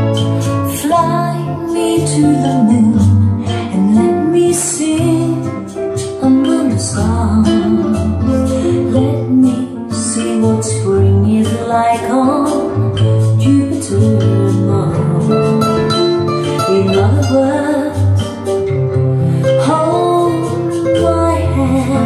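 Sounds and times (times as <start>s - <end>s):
bass line: 0.0s - 22.0s
person singing: 0.0s - 22.0s
song through speakers: 0.0s - 22.0s.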